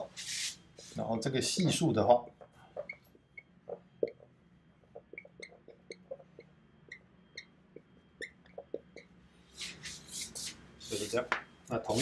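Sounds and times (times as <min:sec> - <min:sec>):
marker squeaking on whiteboard: 0:02.8 - 0:11.2.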